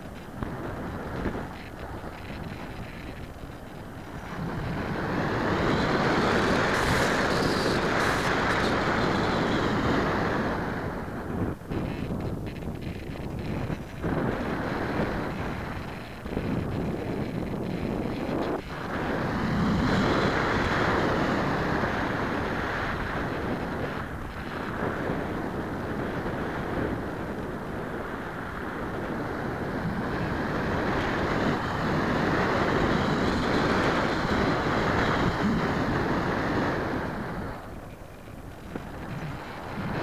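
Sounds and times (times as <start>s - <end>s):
faint high whine: 0.0s - 23.8s
wind rushing over microphone: 0.0s - 40.0s.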